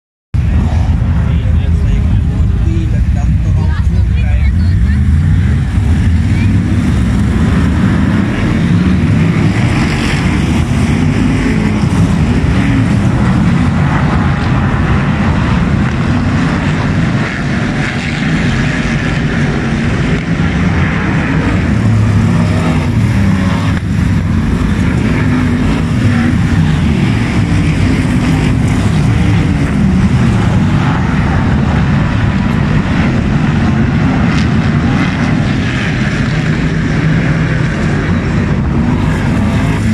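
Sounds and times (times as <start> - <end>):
racing car engines: 0.4 - 39.9.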